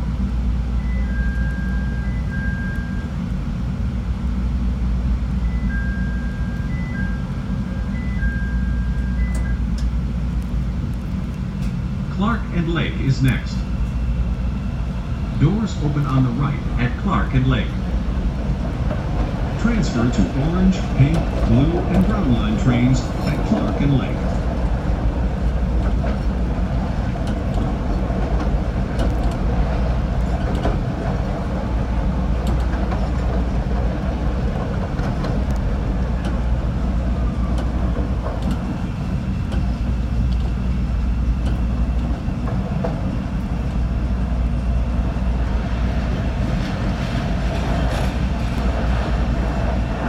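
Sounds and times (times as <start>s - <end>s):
train rumbling on elevated track: 0.0s - 50.0s
wheels clicking over rail joints: 17.6s - 40.8s.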